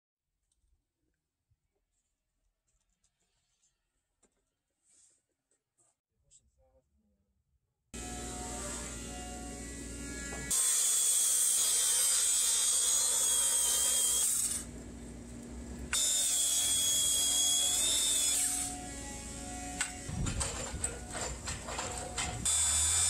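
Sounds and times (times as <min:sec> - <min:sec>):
circular saw cutting wood: 0:08.0 - 0:14.9, 0:15.5 - 0:23.0.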